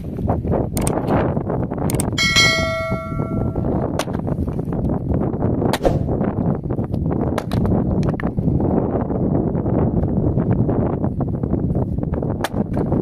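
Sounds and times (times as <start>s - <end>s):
wind on microphone: 0.0s - 13.0s
bright bell ding: 2.2s - 3.8s.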